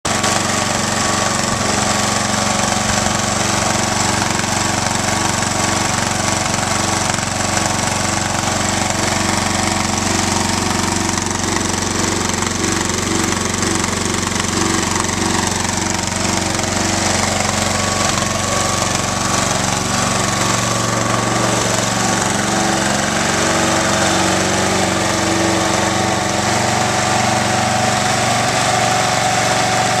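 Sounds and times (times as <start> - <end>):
mower engine running: 0.0 - 30.0.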